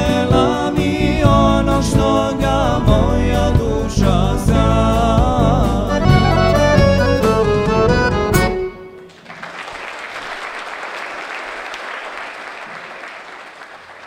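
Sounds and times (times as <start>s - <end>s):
folk band with accordion: 5.8s - 9.0s
audience applauding: 8.9s - 14.0s.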